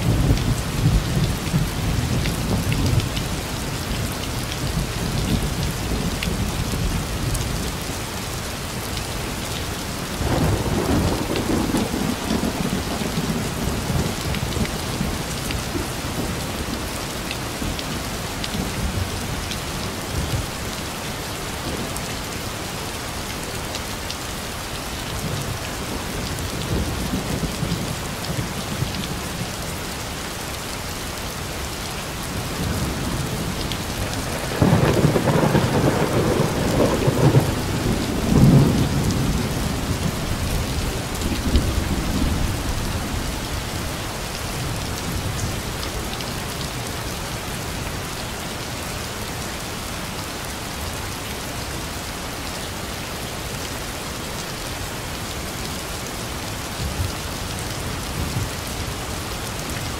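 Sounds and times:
heavy rain: 0.0 - 59.9
thunder rumbling: 32.6 - 43.2.

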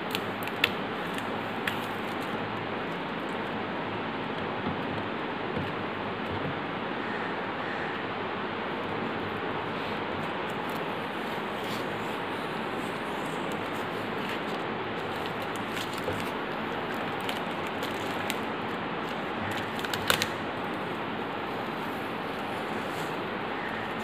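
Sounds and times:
tape peeling clicks: 13.5 - 20.4.

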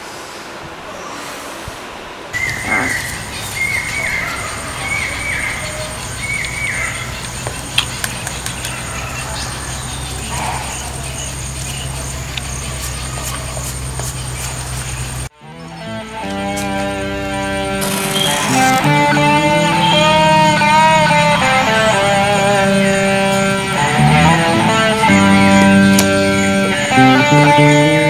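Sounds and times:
steady low hum: 2.2 - 15.3
bird calling: 2.4 - 28.0
thin high whine: 2.4 - 28.0.

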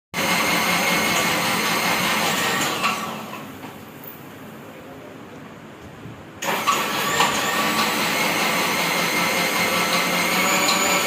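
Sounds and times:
mixer grinder motor whirring: 0.2 - 3.5, 6.4 - 11.0.

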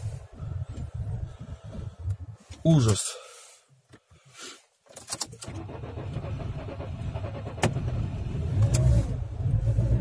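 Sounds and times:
car engine cold starting: 5.0 - 10.0.

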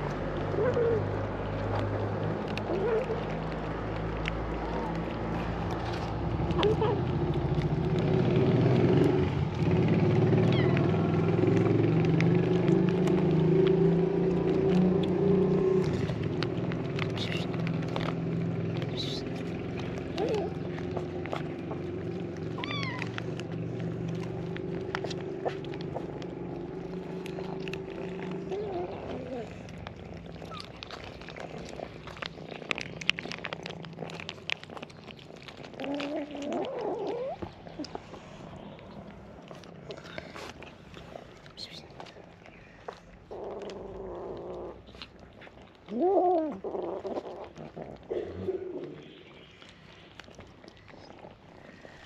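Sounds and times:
vehicle engine running: 0.0 - 35.8
kittens crunching food: 0.0 - 52.0
cat meowing: 10.4 - 11.1, 22.6 - 23.2.

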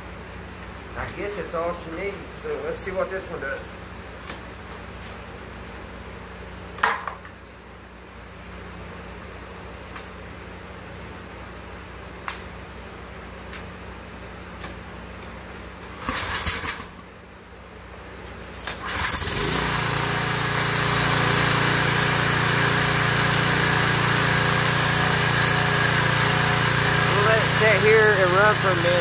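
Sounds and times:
small gas engine starting and running: 15.8 - 17.0, 18.5 - 29.0.

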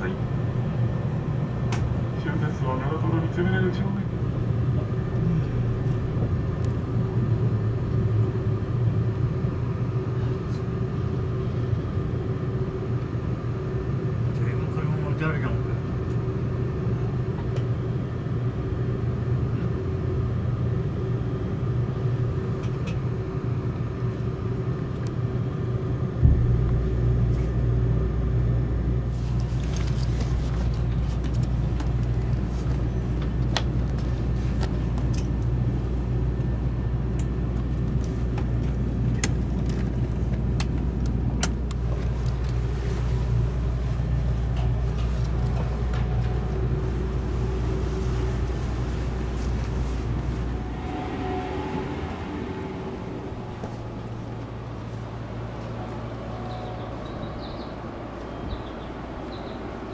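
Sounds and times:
train cabin rumble with hum: 0.0 - 59.9.

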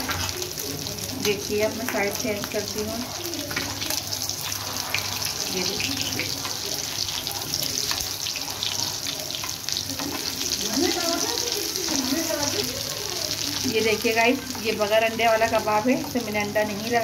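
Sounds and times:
food sizzling in hot oil: 0.0 - 17.0
spatula scraping pan: 3.0 - 11.2.

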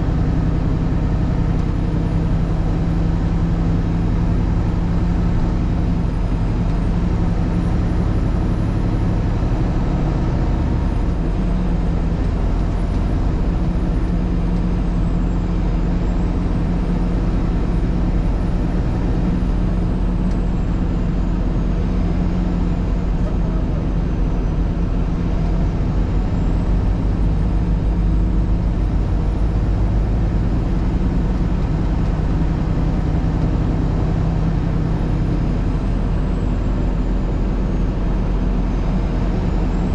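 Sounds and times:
vehicle engine hum: 0.0 - 39.9.

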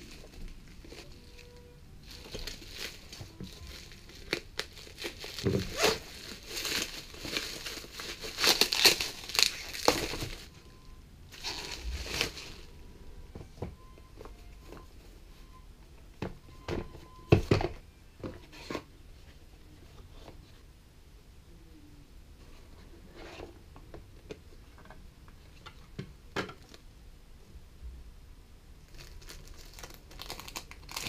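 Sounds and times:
bubble wrap crinkling and tearing: 0.0 - 10.6, 11.3 - 12.7, 28.9 - 31.0.

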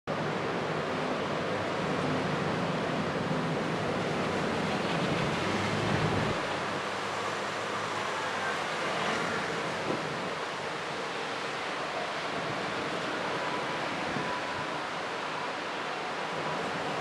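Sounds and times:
strong wind rushing: 3.2 - 6.4.

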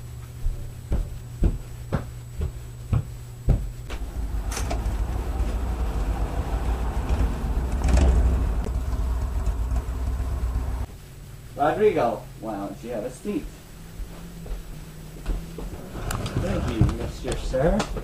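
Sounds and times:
low steady rumble: 0.0 - 17.6
footsteps thudding: 0.3 - 10.9, 13.4 - 16.0.

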